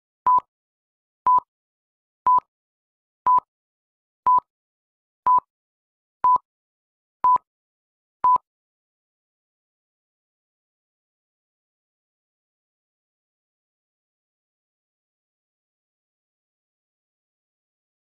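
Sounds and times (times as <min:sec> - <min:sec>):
short high countdown beeps: 0:01.3 - 0:01.5, 0:02.3 - 0:02.5, 0:03.3 - 0:03.5, 0:05.3 - 0:05.5, 0:06.2 - 0:06.4.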